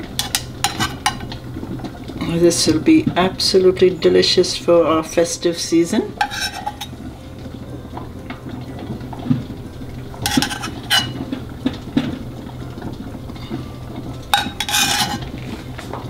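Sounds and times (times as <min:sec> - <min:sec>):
teaspoon clinking against saucepan: 0:00.2 - 0:01.3, 0:06.2 - 0:07.0, 0:10.2 - 0:11.2, 0:14.3 - 0:15.3.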